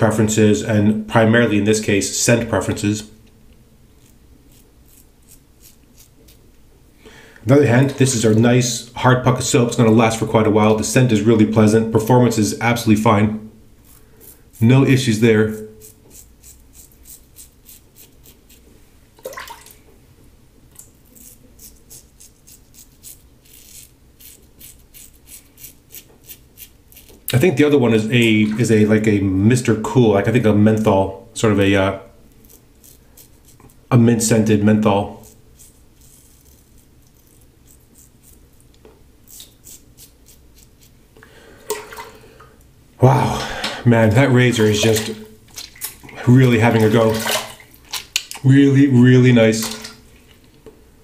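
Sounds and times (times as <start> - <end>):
razor scratching stubble: 3.9 - 6.4, 13.8 - 18.6, 21.1 - 27.4, 32.4 - 33.8, 35.1 - 41.0.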